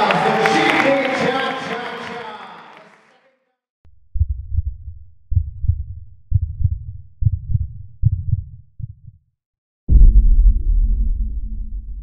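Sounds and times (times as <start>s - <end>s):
heartbeat-like deep thumps: 4.1s - 9.2s, 9.9s - 12.0s.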